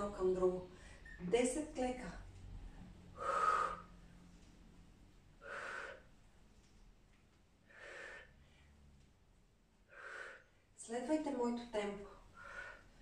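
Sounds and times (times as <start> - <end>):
woman breathing out hard: 3.2 - 3.9, 5.4 - 6.1, 7.7 - 8.6.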